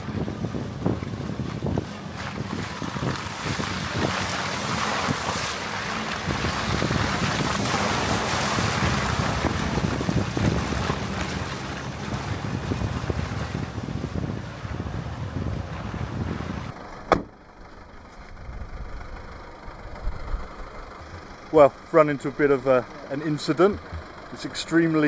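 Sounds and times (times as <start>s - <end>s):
wind noise on microphone: 0.0s - 16.8s
truck engine and tyre rumble: 0.0s - 25.0s.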